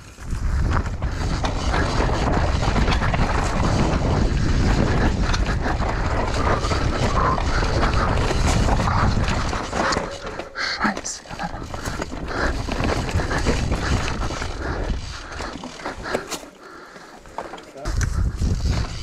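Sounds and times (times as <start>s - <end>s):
wind on microphone: 0.0s - 10.6s, 17.9s - 19.0s
bike rattling: 0.0s - 19.0s.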